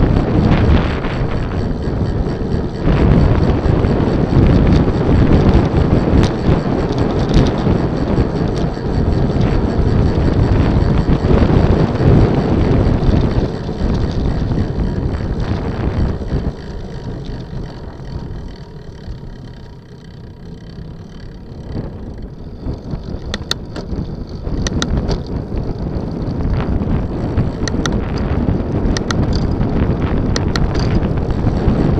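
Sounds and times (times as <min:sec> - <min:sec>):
wind buffeting microphone: 0:00.0 - 0:31.9
sharp clicks: 0:06.2 - 0:25.4, 0:27.3 - 0:28.3, 0:28.9 - 0:29.6, 0:30.3 - 0:31.1.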